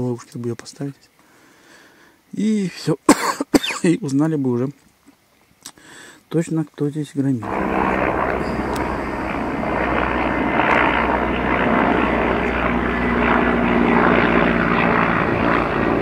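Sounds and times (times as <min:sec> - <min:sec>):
helicopter flying overhead: 0:07.4 - 0:16.0.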